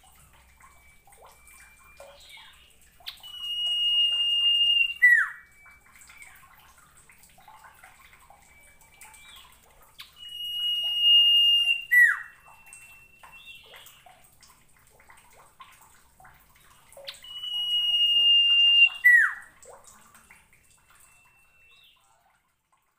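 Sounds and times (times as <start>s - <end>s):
bird whistling with downward slur: 0.8s - 6.4s, 8.5s - 14.1s, 17.0s - 19.6s, 21.0s - 22.0s.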